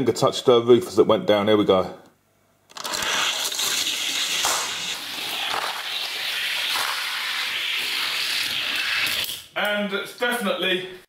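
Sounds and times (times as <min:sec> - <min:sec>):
toy cars rolling down plastic track: 0:02.7 - 0:09.4.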